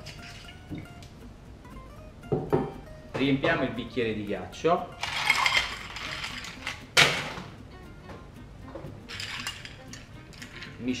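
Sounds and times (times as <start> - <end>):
spoon stirring ice in glass: 5.0 - 6.8, 9.1 - 10.8
ice cubes clinking into glass: 5.0 - 7.3, 9.1 - 10.8.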